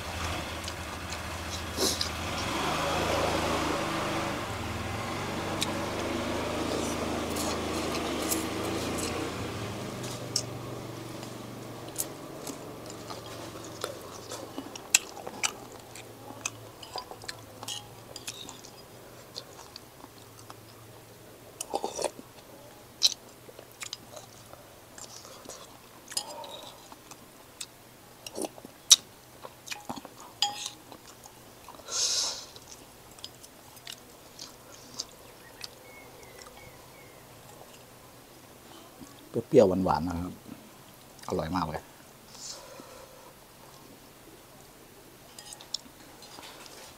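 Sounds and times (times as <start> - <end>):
person chewing and slurping noodles: 5.0 - 37.9
utensils tapping ceramic bowl: 16.8 - 18.8, 29.8 - 30.8.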